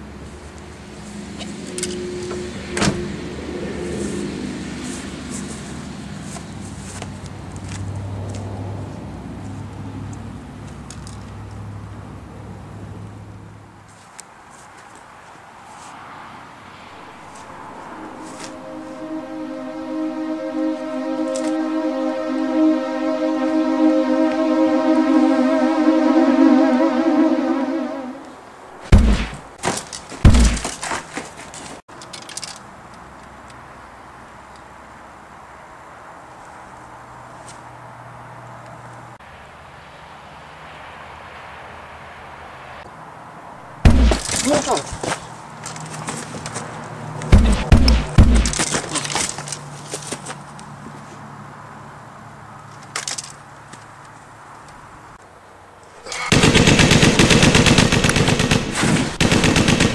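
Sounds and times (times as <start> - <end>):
loud booming bangs: 28.9 - 29.6, 30.2 - 30.7, 43.8 - 44.4, 47.3 - 48.6
heavy thumps: 28.9 - 30.9, 43.8 - 44.4, 47.3 - 48.7.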